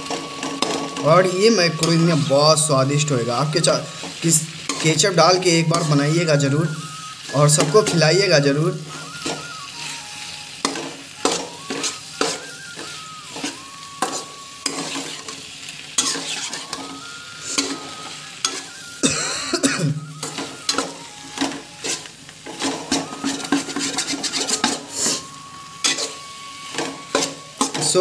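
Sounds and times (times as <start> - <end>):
metal spatula scraping frying pan: 0.0 - 2.3, 3.4 - 19.1, 20.0 - 28.0
food sizzling in pan: 0.0 - 28.0.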